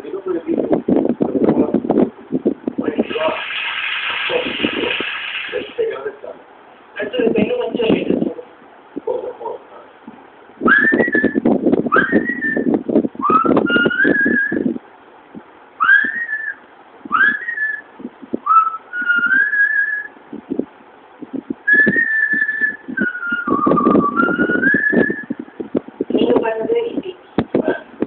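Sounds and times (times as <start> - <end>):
person whistling a melody: 10.7 - 14.7, 15.8 - 20.1, 21.7 - 25.4.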